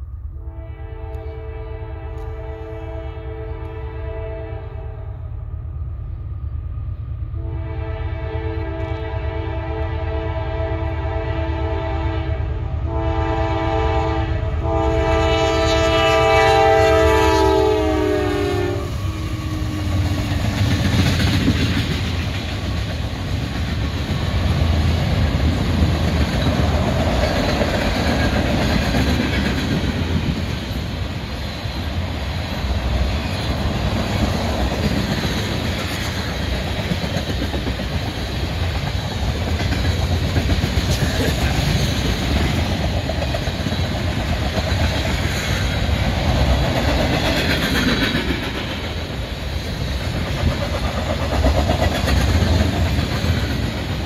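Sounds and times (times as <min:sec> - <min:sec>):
locomotive air horn blasts: 0:00.4 - 0:05.1, 0:07.4 - 0:20.2
train wheels clattering on rails: 0:18.9 - 0:54.0.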